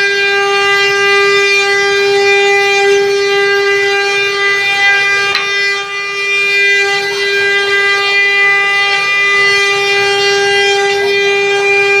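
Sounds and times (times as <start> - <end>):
wood carving router whining: 4.6 - 5.9.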